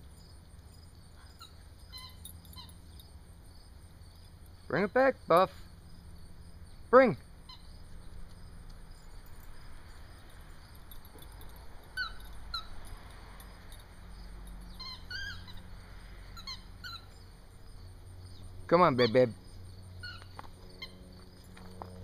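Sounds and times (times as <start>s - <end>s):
squeaky toy ball squeaking: 1.4s - 2.8s, 12.0s - 12.7s, 14.7s - 15.7s, 16.4s - 17.1s.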